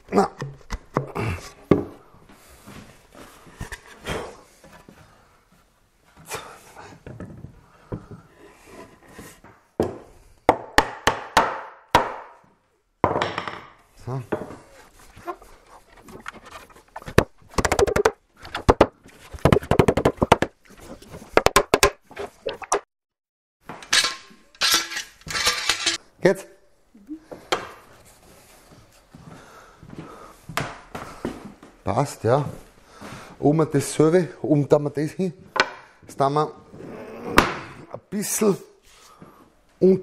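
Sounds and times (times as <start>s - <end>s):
wooden boards knocking: 16.2s - 20.6s.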